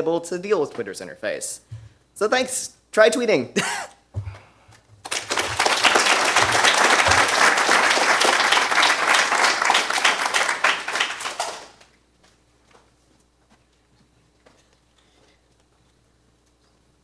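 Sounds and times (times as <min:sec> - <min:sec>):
audience applauding: 0:05.0 - 0:11.9.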